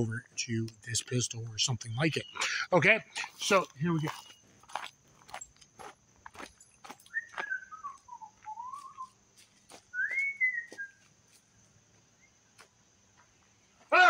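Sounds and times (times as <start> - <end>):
footsteps on gravel: 3.1 - 14.0
person whistling: 7.1 - 9.1, 9.9 - 11.0.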